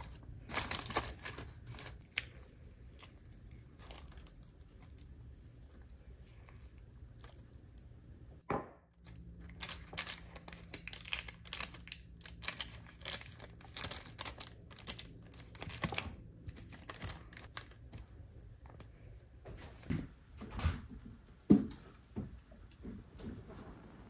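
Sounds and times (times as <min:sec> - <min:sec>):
parchment paper crinkling: 0:00.0 - 0:07.4, 0:09.0 - 0:19.0.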